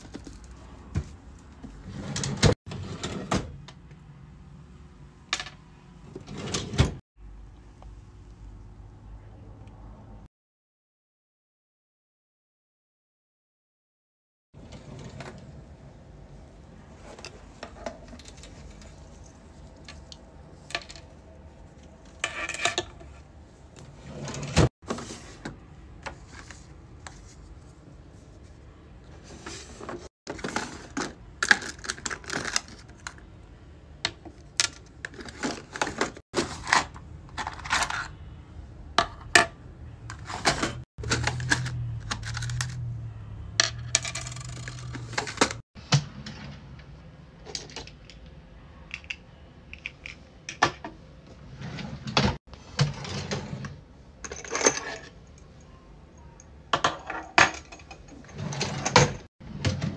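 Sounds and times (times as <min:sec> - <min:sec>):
drawer sliding open: 0:01.7 - 0:03.6, 0:06.1 - 0:07.0, 0:14.6 - 0:15.7, 0:23.8 - 0:25.6, 0:40.1 - 0:42.5, 0:51.4 - 0:53.8, 0:58.2 - 0:59.9
metal pieces clinking in plastic bin: 0:40.3 - 0:42.9, 0:43.7 - 0:45.6, 0:54.3 - 0:55.2.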